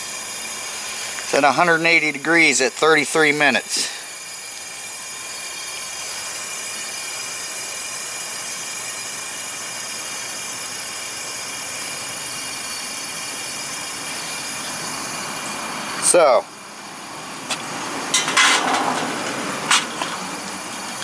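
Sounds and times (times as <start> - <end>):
propane burner hissing: 0.0 - 21.0.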